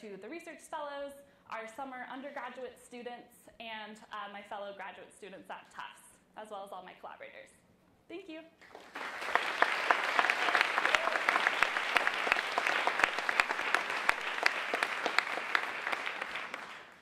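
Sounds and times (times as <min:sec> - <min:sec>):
audience applauding: 0:08.6 - 0:17.0.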